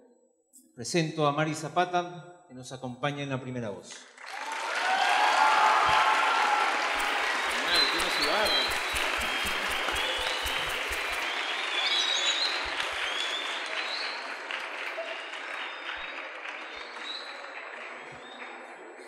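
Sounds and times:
audience applauding: 4.2s - 19.0s.

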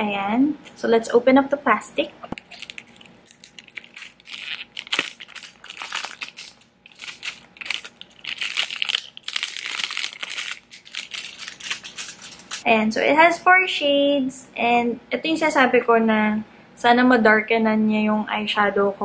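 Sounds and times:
plastic shrink-wrap crinkling: 2.4s - 12.7s.

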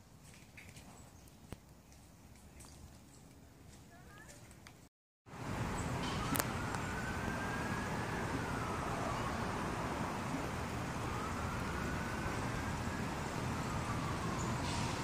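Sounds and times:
street traffic: 0.9s - 15.0s
siren wailing: 6.0s - 15.0s.

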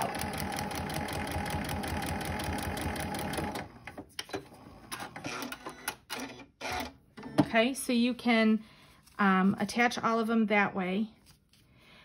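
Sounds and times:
sewing machine stitching: 0.0s - 4.0s.

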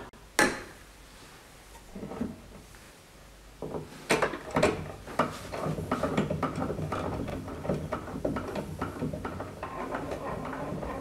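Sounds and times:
wooden knocks of crank: 3.6s - 11.0s.

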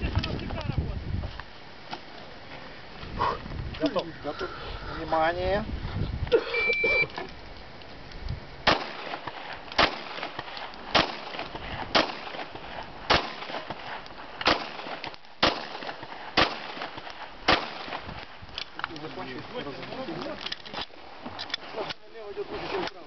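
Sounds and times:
pistol shots: 8.6s - 18.2s.

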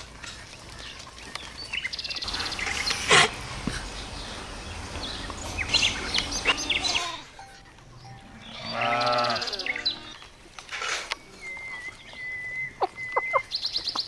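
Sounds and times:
high bird chirps: 1.8s - 3.1s, 3.8s - 10.2s, 11.2s - 14.0s.

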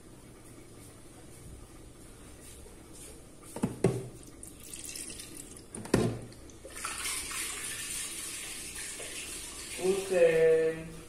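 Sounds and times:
water running into sink: 4.3s - 10.4s.

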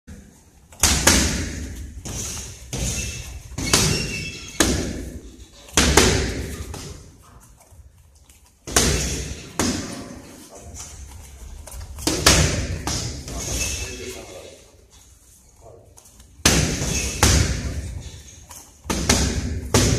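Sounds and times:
boxing gloves punching mitts: 0.7s - 7.2s, 8.6s - 10.2s, 11.4s - 13.6s, 16.3s - 19.9s.

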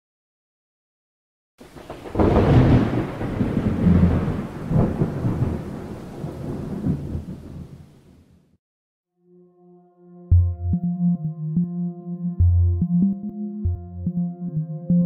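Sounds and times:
sharp thunder crack: 1.6s - 8.2s
thunder rumbling: 1.6s - 8.3s.

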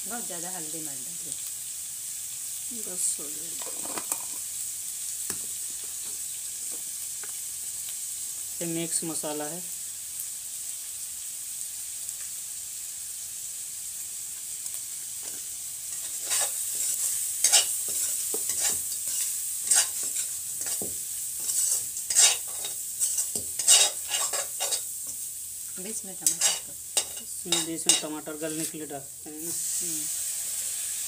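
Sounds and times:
meat sizzling in a pan: 0.0s - 31.0s
metal ladle scraping a pan: 15.9s - 25.2s, 26.2s - 28.8s.

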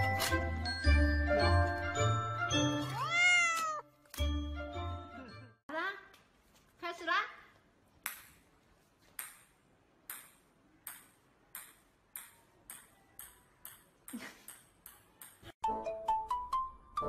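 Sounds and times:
table tennis ball bouncing on tiles: 9.1s - 15.6s.

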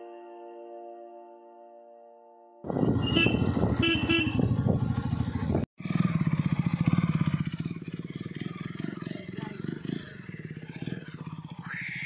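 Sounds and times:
motorcycle engine rumbling: 2.6s - 12.0s
short horn beeps: 3.0s - 4.5s.

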